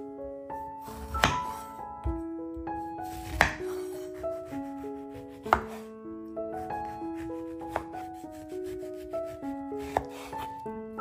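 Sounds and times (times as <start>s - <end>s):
light piano-like music: 0.0s - 11.0s
knife slicing orange peel: 9.8s - 10.5s.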